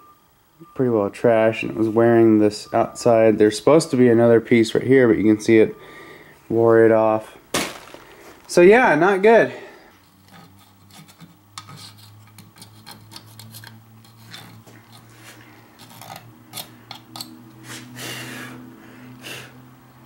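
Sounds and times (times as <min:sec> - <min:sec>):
steady low hum: 0:00.0 - 0:20.0
metal clicks and scraping: 0:10.2 - 0:15.1, 0:15.8 - 0:17.4
rasping metal scrape: 0:10.2 - 0:16.7.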